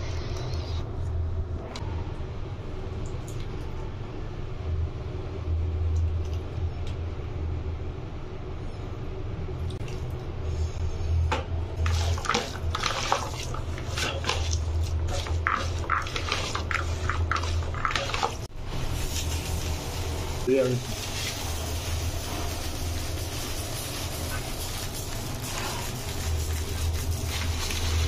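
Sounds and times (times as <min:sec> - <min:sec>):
wet squelching of food mix: 0:11.8 - 0:28.0.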